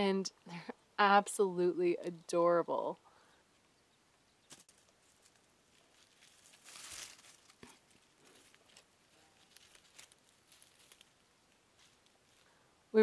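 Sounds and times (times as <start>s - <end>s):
dry leaves rustling and crackling: 4.5s - 12.6s.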